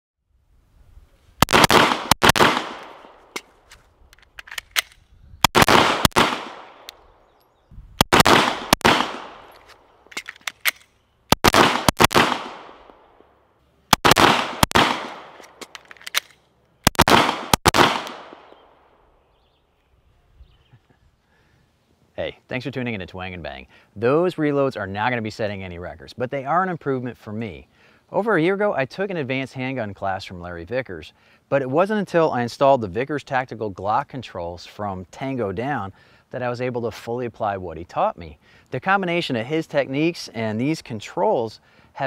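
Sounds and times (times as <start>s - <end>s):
pistol shots: 1.4s - 3.4s, 4.8s - 6.9s, 8.0s - 9.6s, 11.3s - 13.0s, 13.9s - 15.6s, 16.8s - 18.6s
magazine reload clicks: 2.8s - 5.6s, 9.5s - 11.0s, 15.0s - 17.0s.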